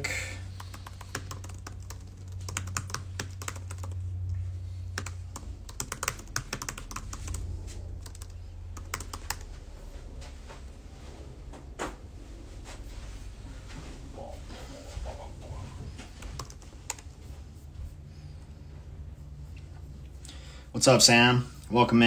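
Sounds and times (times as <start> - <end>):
low steady hum: 0.0 - 22.0
typing on computer keyboard: 0.5 - 4.0, 5.0 - 9.5, 16.2 - 17.1.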